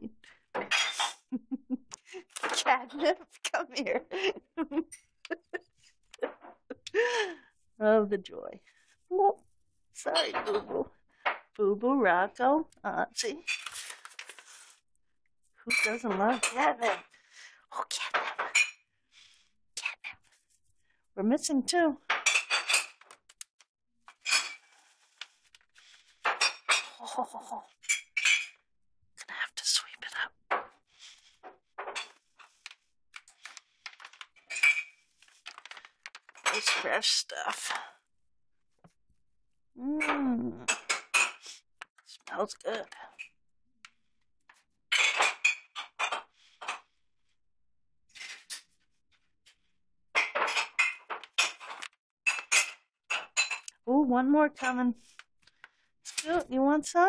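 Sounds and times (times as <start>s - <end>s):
plastic pouch crinkling: 35.2s - 36.4s.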